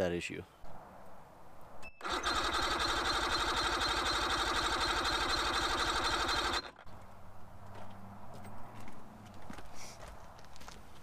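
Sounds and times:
electric starter cranking outboard engine: 2.0s - 6.9s.

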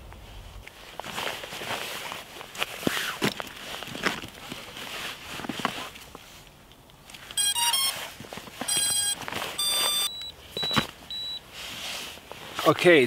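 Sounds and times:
electronic motor beeps: 7.4s - 8.0s, 8.7s - 11.4s.

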